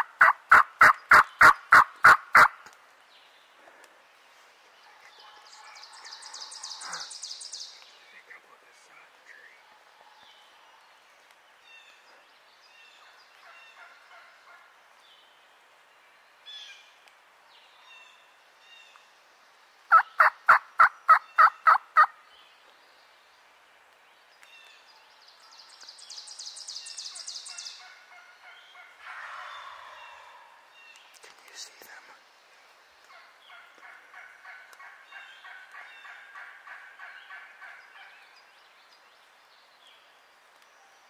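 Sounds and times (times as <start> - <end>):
turkey yelping: 0.0 - 2.5, 19.9 - 22.1
songbirds chirping: 0.0 - 41.0.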